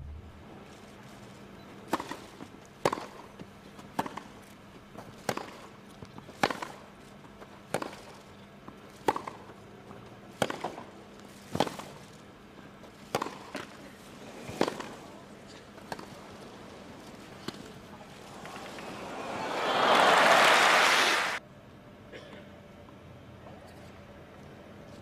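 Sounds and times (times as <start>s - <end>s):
tennis ball hit by rackets: 2.8s - 3.3s, 3.9s - 4.3s, 5.2s - 5.7s, 6.4s - 6.8s, 7.7s - 8.2s, 9.0s - 9.5s, 10.4s - 10.9s, 11.5s - 11.9s, 13.1s - 13.8s, 14.4s - 20.4s.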